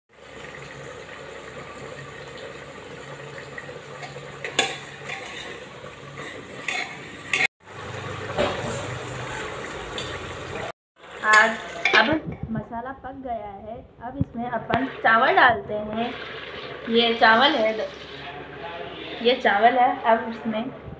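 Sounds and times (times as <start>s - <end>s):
metal ladle scraping a pot: 4.0s - 5.6s, 6.2s - 7.5s.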